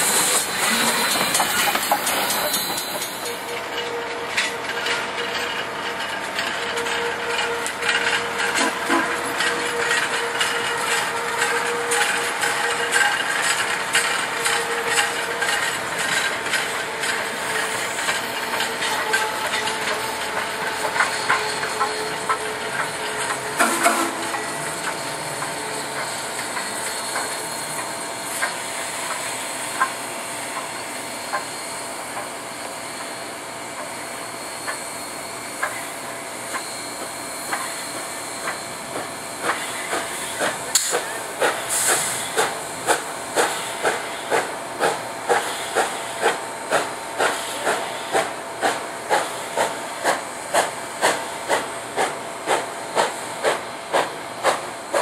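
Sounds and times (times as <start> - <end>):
steam hissing: 0.0 - 3.4, 14.7 - 55.0
train wheels clicking over rail joints: 0.0 - 33.2, 34.6 - 34.9, 35.5 - 55.0.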